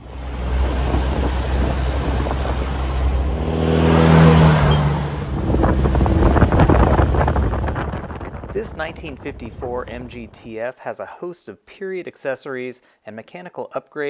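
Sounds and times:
car engine driving past: 0:00.0 - 0:10.2
wind buffeting microphone: 0:00.0 - 0:10.4.

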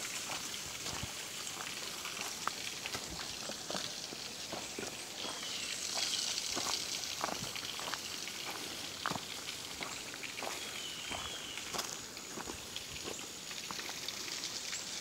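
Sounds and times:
footsteps crunching dry leaves: 0:00.0 - 0:14.1.

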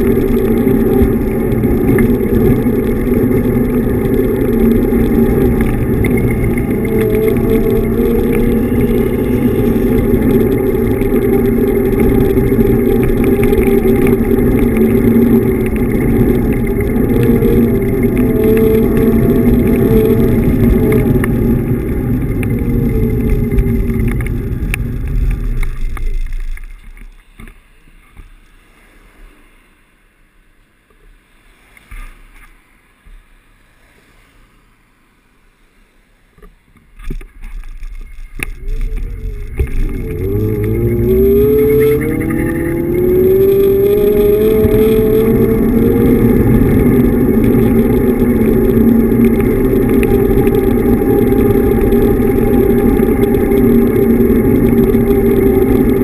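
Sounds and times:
electric motor whining: 0:00.0 - 0:26.0, 0:38.1 - 0:56.0
wind rushing over microphone: 0:00.0 - 0:26.3, 0:38.2 - 0:56.0.

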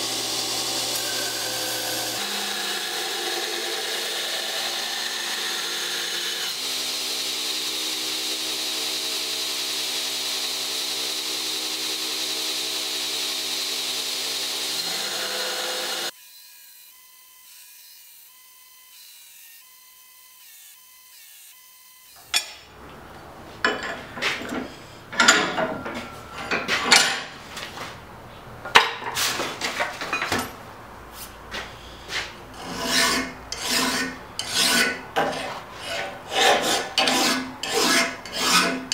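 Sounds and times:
belt grinder running: 0:00.0 - 0:16.2
hand file rasping on steel: 0:31.5 - 0:38.9.

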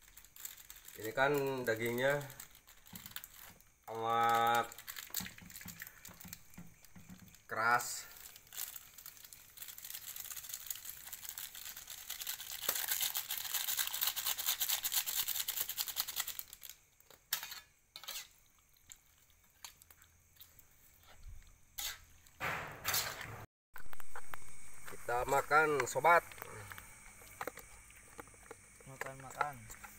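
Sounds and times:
spatula scraping metal wok: 0:17.2 - 0:18.4, 0:21.8 - 0:22.2.

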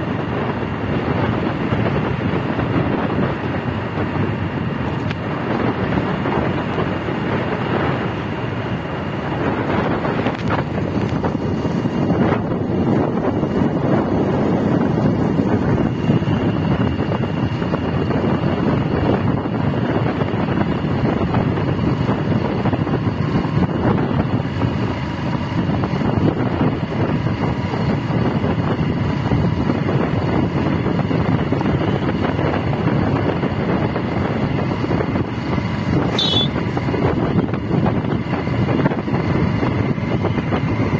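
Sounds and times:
wind rush and road noise: 0:00.0 - 0:40.9.

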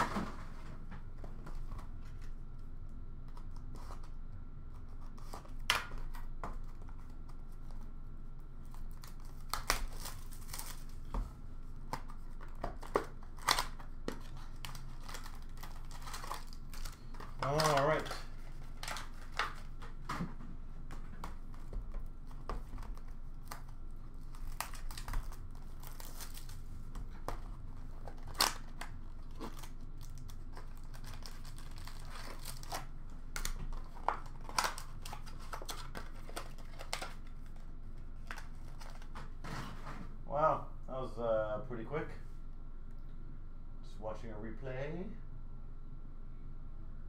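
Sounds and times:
low room hum: 0:00.0 - 0:47.0
foil wrappers tearing and crinkling: 0:08.6 - 0:20.0, 0:20.9 - 0:39.2.

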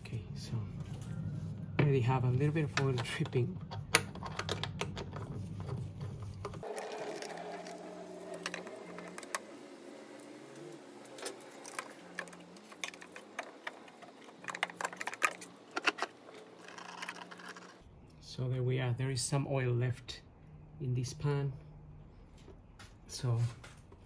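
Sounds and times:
metal tools clicking and scraping: 0:11.2 - 0:17.8.

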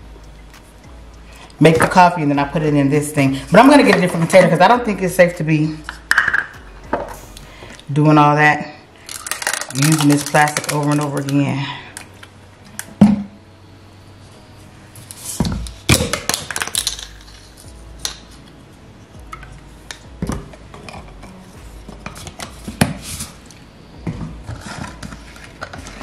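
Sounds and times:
bottles and glass jar clinking: 0:09.0 - 0:11.4, 0:15.5 - 0:18.2
creamer pouring over ice: 0:09.0 - 0:11.4
clatter of bottles: 0:09.1 - 0:11.4, 0:15.4 - 0:17.6, 0:24.1 - 0:26.0.

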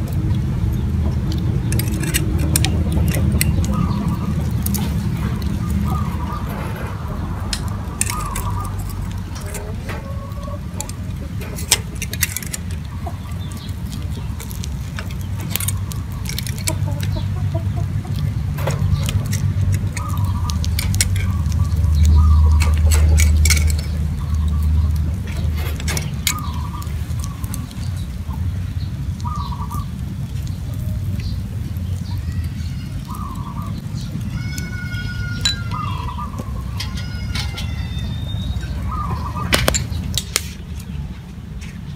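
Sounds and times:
low rumble: 0:00.0 - 0:29.2
chickens clucking: 0:00.0 - 0:41.9
bird chirping: 0:00.7 - 0:30.6, 0:31.2 - 0:41.9
metal tongs clicking on bowls: 0:01.3 - 0:17.3, 0:18.1 - 0:27.8, 0:34.1 - 0:40.5.

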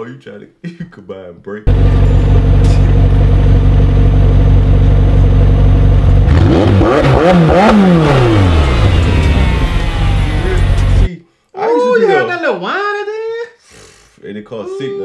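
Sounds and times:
car engine idling and revving: 0:01.7 - 0:11.1.

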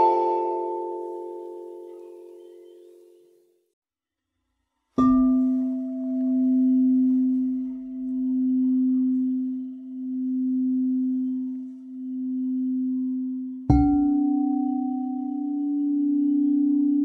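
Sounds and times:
singing bowl ringing: 0:05.0 - 0:17.0.

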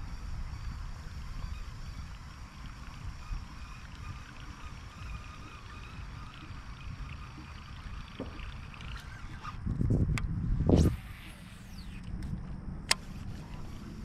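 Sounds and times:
faint water sounds: 0:00.0 - 0:09.8
wind rumble on microphone: 0:00.0 - 0:14.0.

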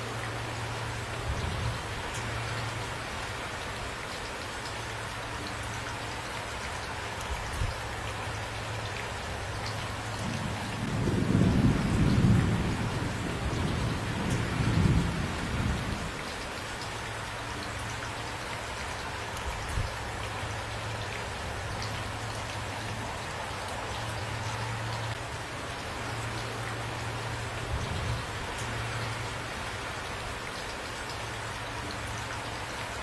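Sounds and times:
heavy rain falling: 0:00.0 - 0:33.0
thunder rumbling: 0:10.2 - 0:16.2.

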